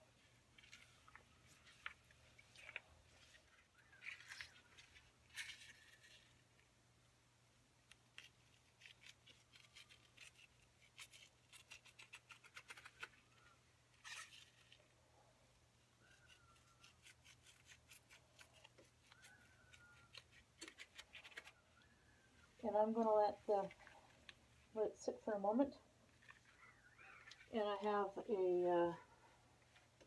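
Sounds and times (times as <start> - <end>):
gloved hands rustling wet yarn: 0.0 - 6.8.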